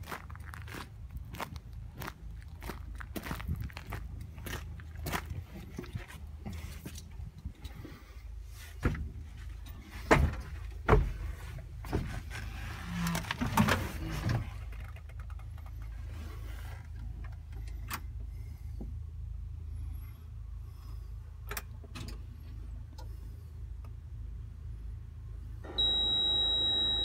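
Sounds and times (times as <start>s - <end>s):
steady low rumble: 0.0s - 25.7s
knocks and clunks in excavator cab: 8.8s - 12.5s.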